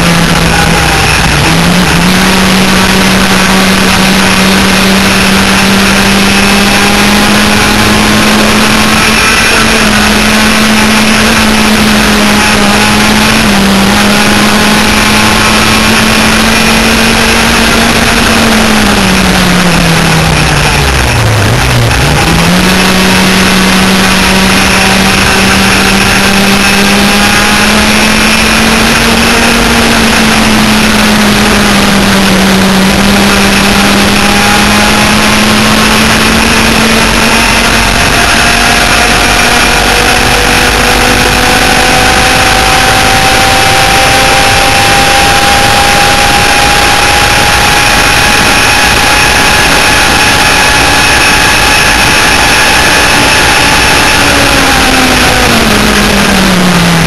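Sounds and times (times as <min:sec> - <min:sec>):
kart engines revving: 0:00.0 - 0:57.0.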